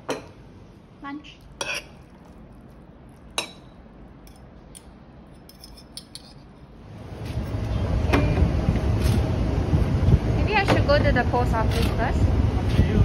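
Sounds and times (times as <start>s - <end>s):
fork and spoon clinking on plate: 1.6s - 2.4s, 3.2s - 6.6s
wind buffeting microphone: 7.8s - 13.0s.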